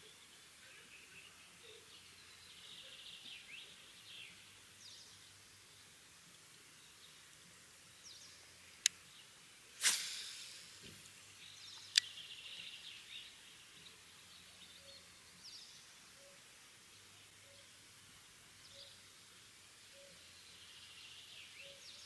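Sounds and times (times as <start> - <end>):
faint birdsong: 0.0 - 22.0
fishing rod swish: 9.8 - 10.8.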